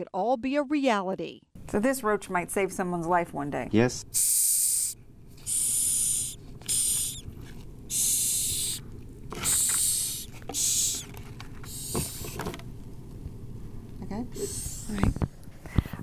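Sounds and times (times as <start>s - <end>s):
cockroach hissing: 4.1s - 7.3s, 7.9s - 8.8s, 9.4s - 12.4s, 14.3s - 15.0s.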